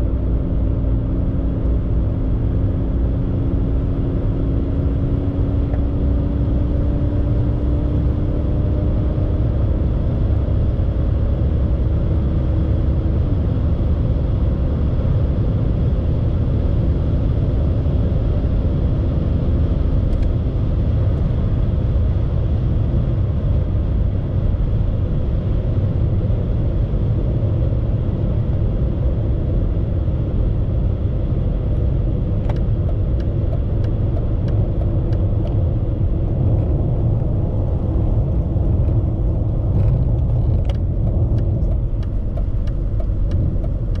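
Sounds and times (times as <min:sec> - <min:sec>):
car engine drone: 0:00.0 - 0:44.0
tyre and wind noise: 0:32.4 - 0:44.0.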